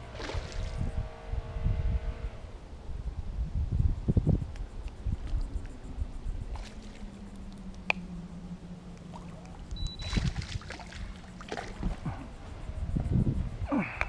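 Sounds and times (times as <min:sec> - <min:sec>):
water splashing and sloshing: 0:00.0 - 0:00.9, 0:06.4 - 0:12.5
low steady hum: 0:00.0 - 0:14.0
fish thrashing at water surface: 0:09.1 - 0:12.1.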